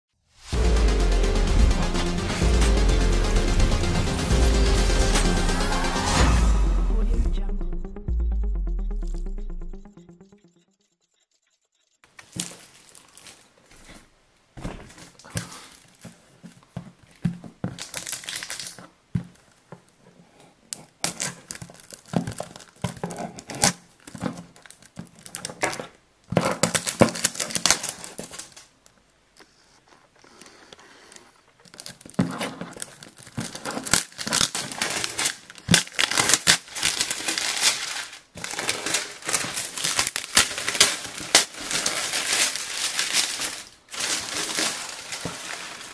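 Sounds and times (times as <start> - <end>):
plastic wrap crinkling and tearing: 12.1 - 14.1, 14.8 - 19.6, 20.7 - 28.8, 31.3 - 45.9.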